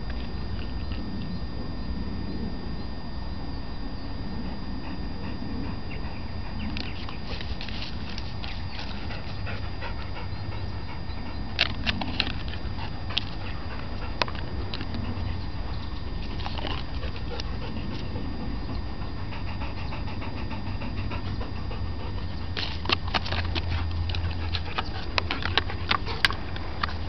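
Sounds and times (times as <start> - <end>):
dog panting: 4.4 - 27.0
clicks and rustles: 22.6 - 27.0.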